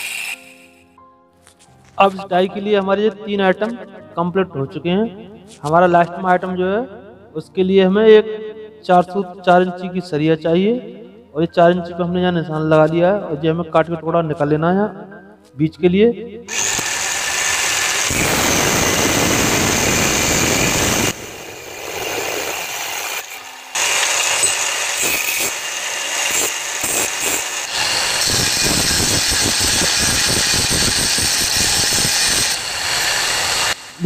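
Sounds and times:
angle grinder cutting steel: 0:00.0 - 0:00.8, 0:16.5 - 0:34.0.

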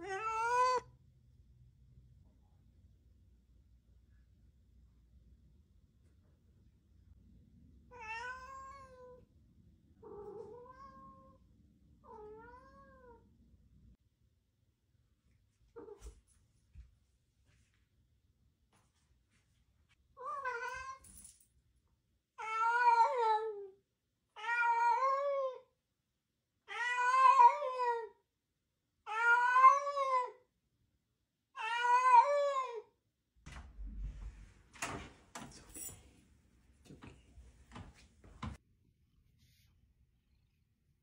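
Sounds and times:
cat meowing: 0:00.0 - 0:00.9, 0:07.9 - 0:09.2, 0:10.0 - 0:11.4, 0:12.1 - 0:13.2
door opening clicks and knocks: 0:33.4 - 0:36.1.

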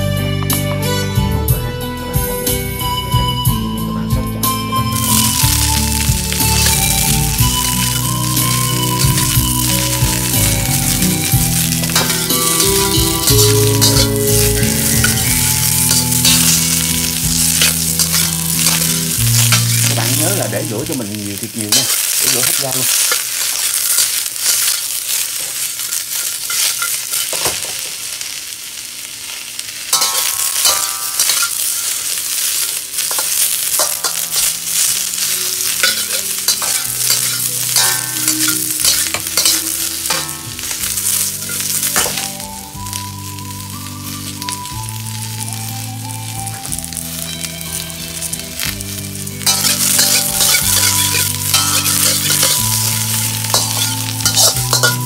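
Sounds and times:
vegetables sizzling in a wok: 0:04.4 - 0:55.0
metal spatula scraping a pan: 0:05.0 - 0:20.4, 0:21.7 - 0:27.7, 0:29.9 - 0:42.4, 0:49.4 - 0:55.0.

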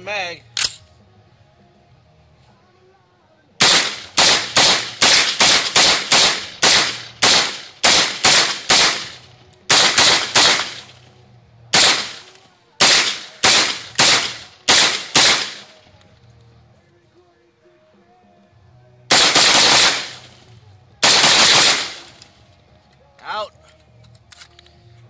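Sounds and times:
rifle firing rapidly: 0:03.6 - 0:11.0, 0:11.7 - 0:15.8, 0:19.1 - 0:20.3, 0:21.0 - 0:22.2.

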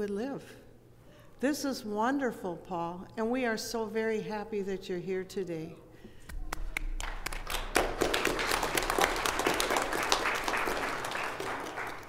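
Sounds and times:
crowd applauding: 0:06.5 - 0:12.0.

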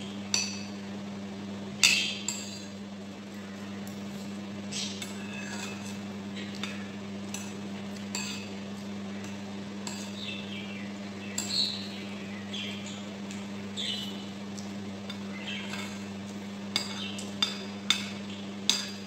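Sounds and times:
metal spoon scraping ceramic bowl: 0:08.1 - 0:08.5.

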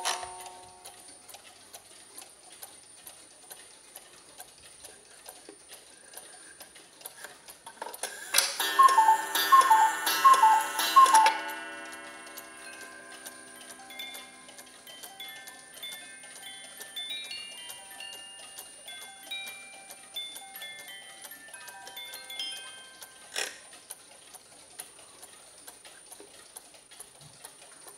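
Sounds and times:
cuckoo clock ticking: 0:00.0 - 0:27.9
cuckoo call: 0:08.2 - 0:16.2.

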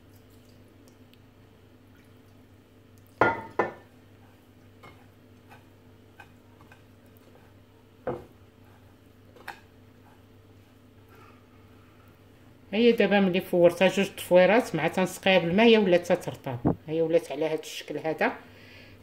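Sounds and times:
hand tossing noodles in dish: 0:03.8 - 0:10.9.

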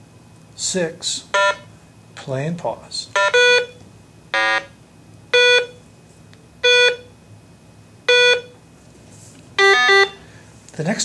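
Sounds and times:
speaker beeps: 0:09.6 - 0:10.2.

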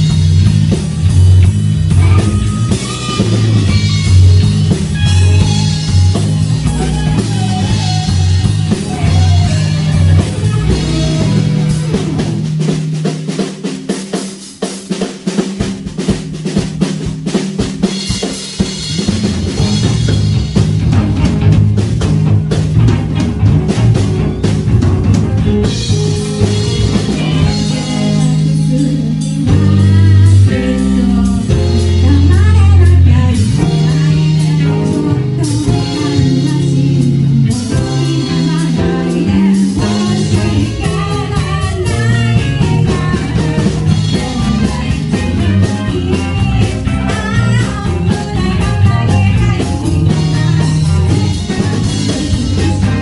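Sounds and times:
electric guitars: 0:00.0 - 0:14.3, 0:16.0 - 0:53.0
bass guitar: 0:00.0 - 0:53.0
drum kit: 0:00.0 - 0:53.0
woman singing lead: 0:01.9 - 0:12.4, 0:26.7 - 0:53.0.

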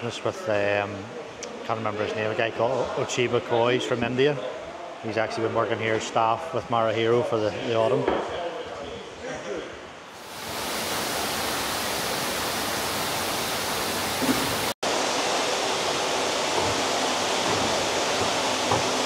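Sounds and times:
running water rushing: 0:10.2 - 0:19.0.

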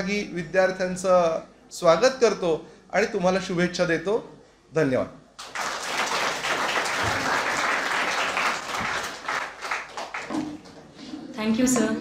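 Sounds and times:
audience applauding: 0:05.4 - 0:10.9.

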